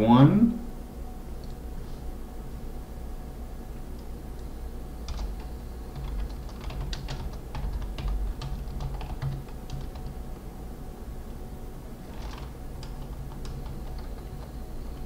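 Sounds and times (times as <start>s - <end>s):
typing on computer keyboard: 5.1s - 10.2s, 12.1s - 15.0s.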